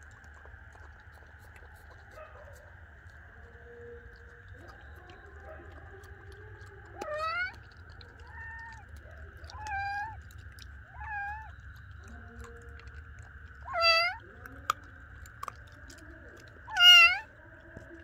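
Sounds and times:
kittens mewing: 0:07.0 - 0:07.6, 0:09.5 - 0:10.2, 0:10.9 - 0:11.5, 0:13.6 - 0:14.2, 0:16.6 - 0:17.3.

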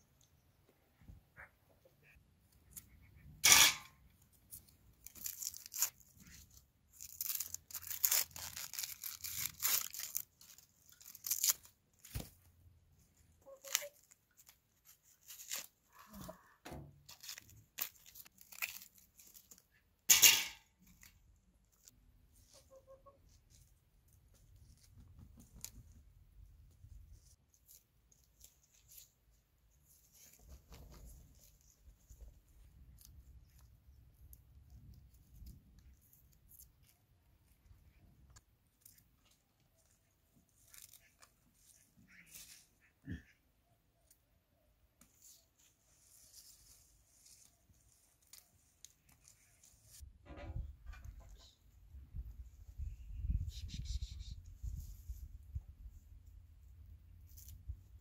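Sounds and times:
onion skins crackling and tearing: 0:04.4 - 0:12.5, 0:13.2 - 0:19.8, 0:31.3 - 0:42.6, 0:46.3 - 0:50.0, 0:57.2 - 0:58.0.

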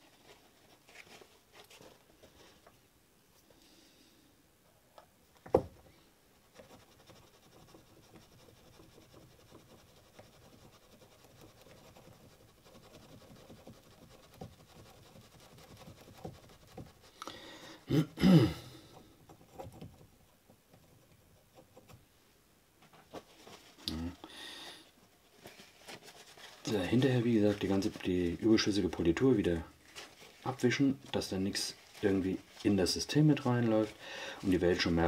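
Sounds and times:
cotton swab rubbing metal: 0:06.4 - 0:17.2.

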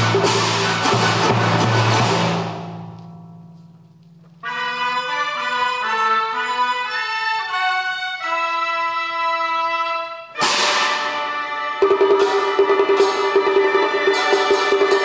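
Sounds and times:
loud percussion crash: 0:00.0 - 0:03.4, 0:10.4 - 0:15.0
winds and strings melody: 0:04.4 - 0:15.0.

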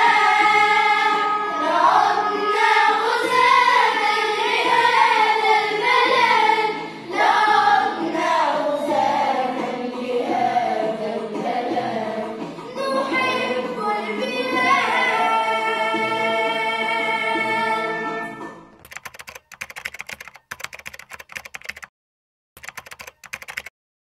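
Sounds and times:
children's choir singing: 0:00.0 - 0:18.5
keyboard typing clicks: 0:18.8 - 0:21.9, 0:22.6 - 0:23.7.

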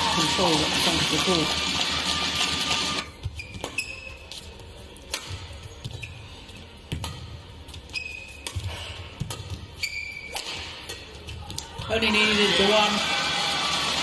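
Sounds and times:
shoes squeaking on court: 0:03.1 - 0:10.6
rackets striking shuttlecock: 0:05.0 - 0:06.1, 0:06.9 - 0:11.7.

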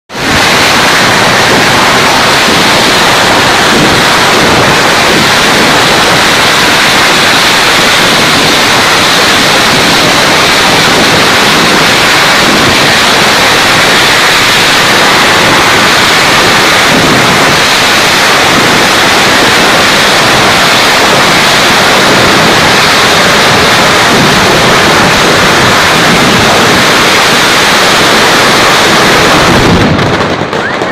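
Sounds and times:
fireworks bursting: 0:00.1 - 0:30.9.

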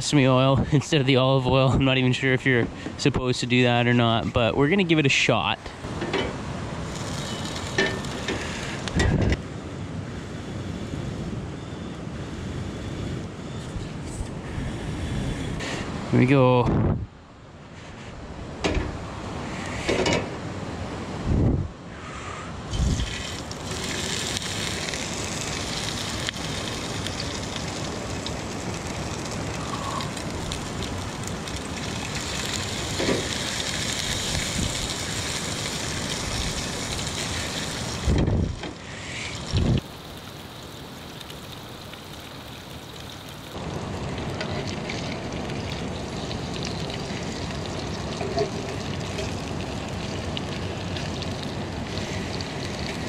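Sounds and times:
fish sizzling in frying pan: 0:06.9 - 0:08.9, 0:22.8 - 0:38.2, 0:39.1 - 0:53.0.

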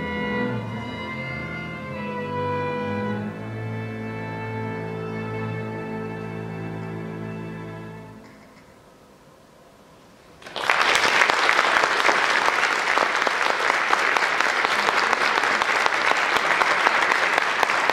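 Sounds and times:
string orchestra chord: 0:00.0 - 0:08.2
audience applause: 0:10.4 - 0:17.9.

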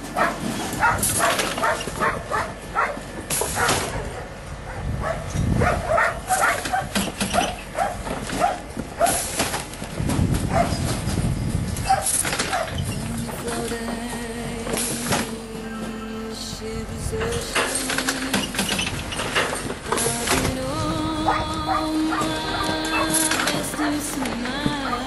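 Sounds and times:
metal clanks from gates: 0:00.0 - 0:20.7, 0:21.3 - 0:25.0
dog barking: 0:00.2 - 0:09.3, 0:10.5 - 0:10.8, 0:11.8 - 0:12.8.

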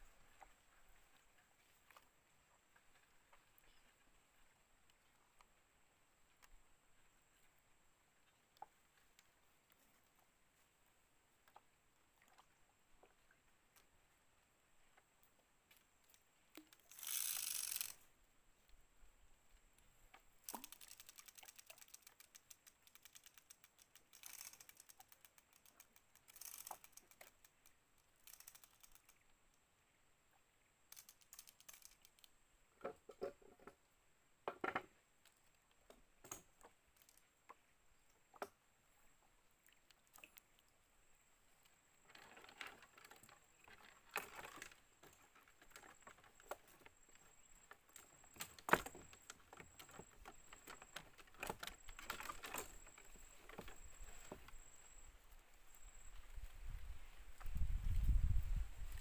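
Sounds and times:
fishing reel clicking: 0:16.6 - 0:18.0, 0:20.4 - 0:29.2, 0:30.9 - 0:32.3.

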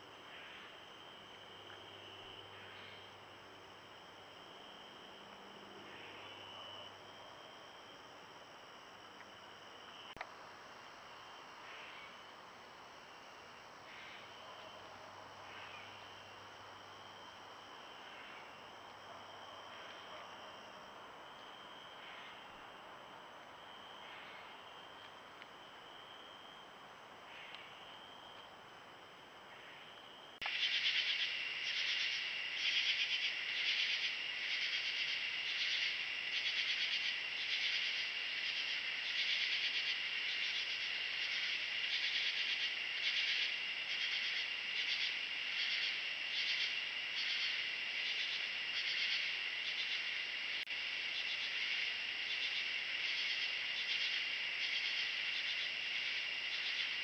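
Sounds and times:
faint high insect trill: 0:00.0 - 0:57.0
pulsing insect trilling: 0:30.4 - 0:50.3.

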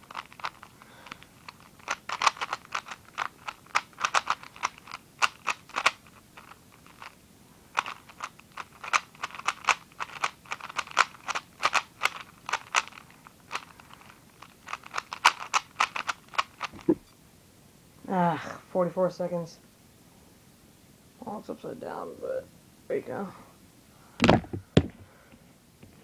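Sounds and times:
plastic puzzle cube clicking: 0:00.0 - 0:07.2, 0:07.8 - 0:16.9.

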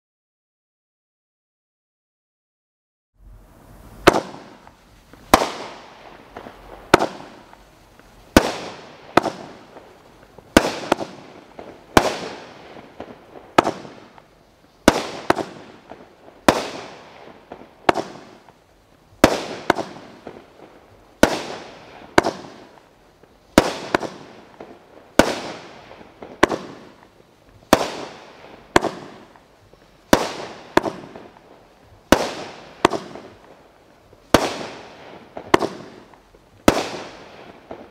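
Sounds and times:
firework cake bangs: 0:04.0 - 0:07.6, 0:08.3 - 0:14.2, 0:14.8 - 0:18.5, 0:19.2 - 0:20.4, 0:21.2 - 0:22.8, 0:23.5 - 0:29.5, 0:30.1 - 0:33.5, 0:34.2 - 0:37.9.

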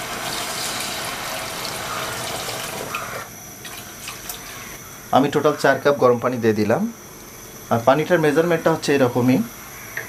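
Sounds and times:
hot water pouring into paste: 0:00.0 - 0:03.3.

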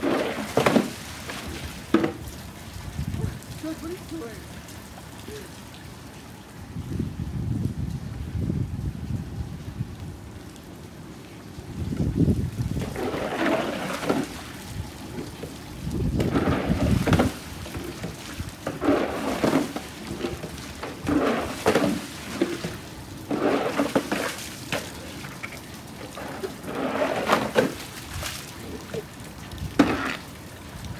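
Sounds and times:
broom swishing through water: 0:00.0 - 0:02.3, 0:12.8 - 0:30.3
rain patter: 0:00.0 - 0:30.9.

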